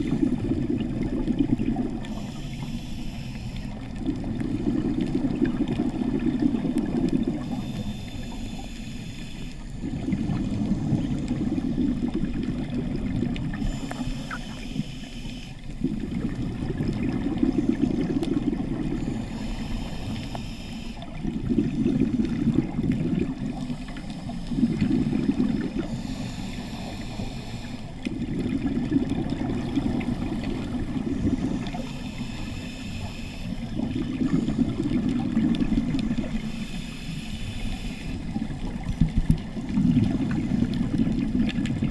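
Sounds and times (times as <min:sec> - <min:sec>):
exhaled air bubbling: 0:00.0 - 0:41.9
regulator hiss on inhale: 0:02.0 - 0:04.0, 0:07.3 - 0:12.1, 0:13.5 - 0:15.8, 0:18.9 - 0:21.8, 0:23.4 - 0:28.2, 0:30.1 - 0:35.1, 0:35.7 - 0:38.4.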